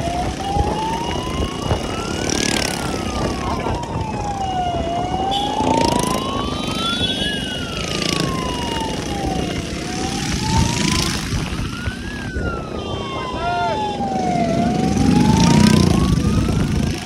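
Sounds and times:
road and wind noise: 0.0 - 17.0
siren wailing: 0.0 - 17.0.

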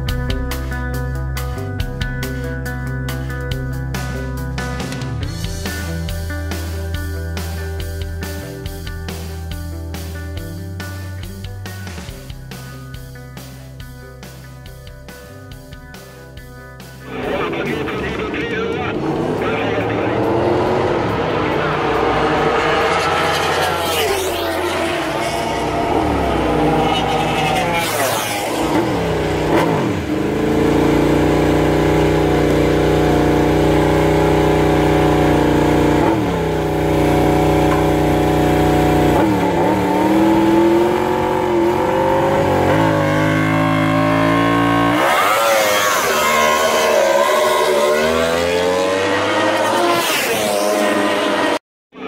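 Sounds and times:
engine revving up and down: 17.1 - 51.6.

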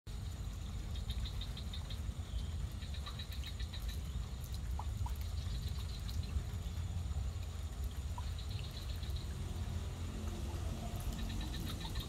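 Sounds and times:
steady low rumble: 0.1 - 12.0
rapid high chirping calls: 2.8 - 4.1, 10.6 - 12.0.

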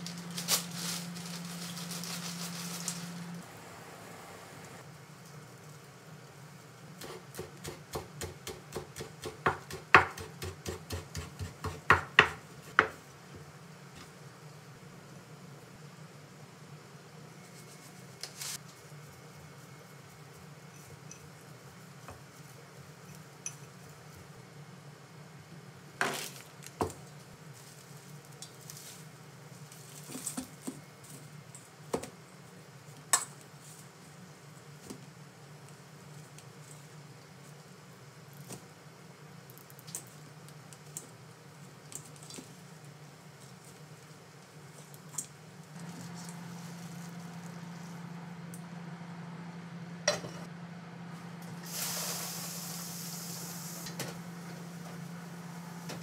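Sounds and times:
steady low hum: 45.4 - 56.0.

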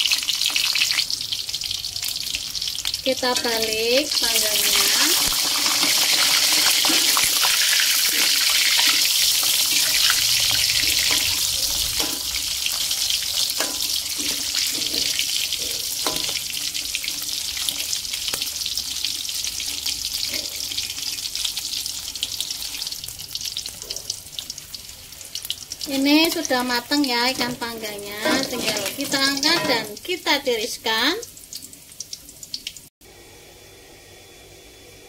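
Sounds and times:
fish sizzling in hot oil: 0.0 - 32.9
metal spatula scraping a pan: 4.6 - 16.6, 27.3 - 30.0.

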